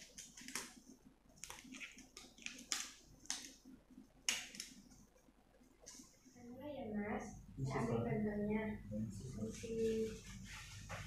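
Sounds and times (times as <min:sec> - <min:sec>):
rubber gloves snapping and crinkling: 0:01.4 - 0:03.6, 0:04.2 - 0:04.8.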